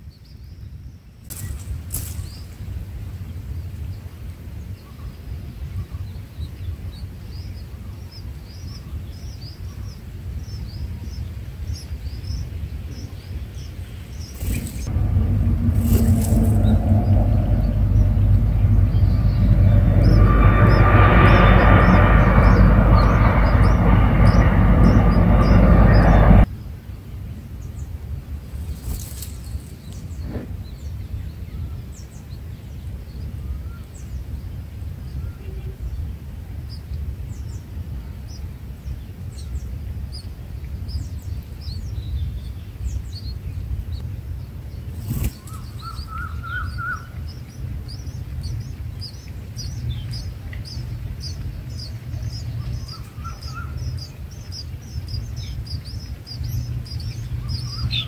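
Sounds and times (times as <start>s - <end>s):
nestlings begging chirps: 1.2s - 4.0s, 6.0s - 26.5s, 28.5s - 31.1s, 44.7s - 58.0s
steady low rumble: 1.3s - 58.0s
loud rushing noise: 14.2s - 26.5s.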